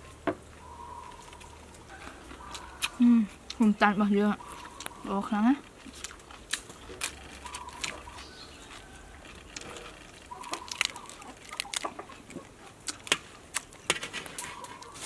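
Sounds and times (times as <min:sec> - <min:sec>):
leaf wrap crinkling: 0:04.4 - 0:15.0
chicken clucking: 0:07.4 - 0:12.8, 0:14.3 - 0:15.0.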